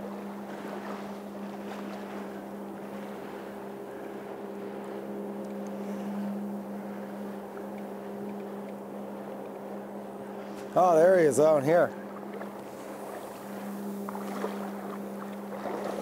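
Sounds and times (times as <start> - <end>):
motor humming: 0.0 - 16.0
river water rushing: 9.7 - 16.0.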